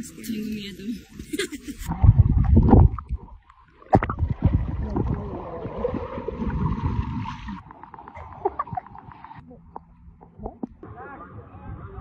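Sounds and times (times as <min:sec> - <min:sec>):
water sloshing and gurgling: 0:01.9 - 0:10.8.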